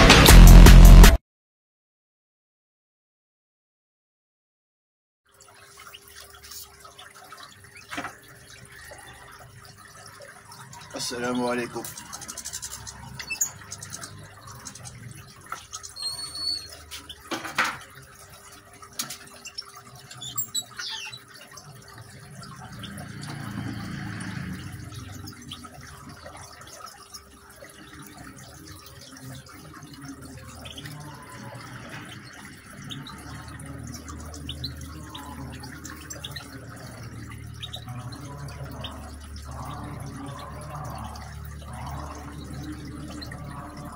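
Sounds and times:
water trickling in fountain: 5.2s - 43.9s
high bird chirps: 11.8s - 17.3s, 19.3s - 21.3s.

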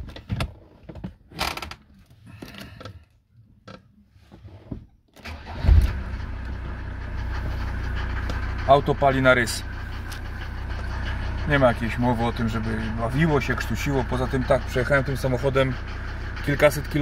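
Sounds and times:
diesel engine cranking: 5.2s - 17.0s
diesel engine idling: 5.3s - 17.0s.

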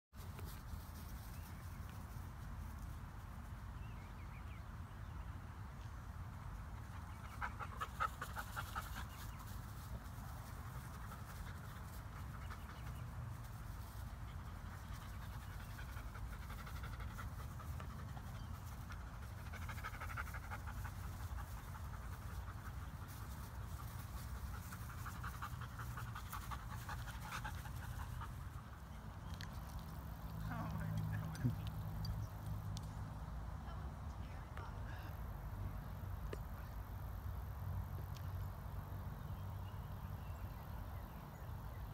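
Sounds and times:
dog panting rapidly: 14.3s - 28.7s.

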